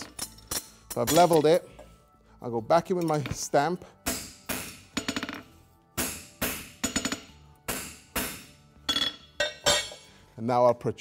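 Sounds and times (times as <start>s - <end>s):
hammer striking metal on anvil: 4.0s - 5.4s, 6.0s - 10.0s.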